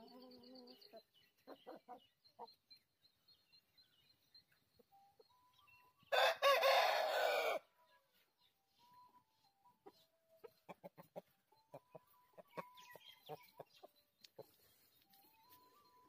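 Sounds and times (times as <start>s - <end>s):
quiet clucks: 0.0s - 2.8s, 9.8s - 15.2s
rooster crowing: 6.1s - 7.7s.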